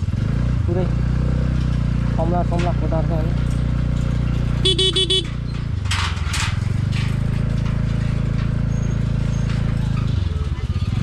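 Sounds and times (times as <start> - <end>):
scooter engine running: 0.0 - 5.9, 6.7 - 11.0
metallic clanks on steel deck: 2.6 - 10.2
scooter horn beeping: 4.6 - 5.4.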